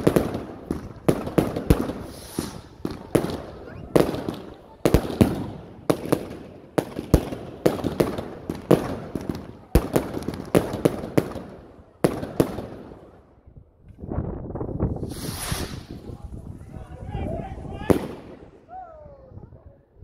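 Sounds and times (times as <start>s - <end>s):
firework crackling: 0.0s - 13.2s, 14.9s - 16.8s.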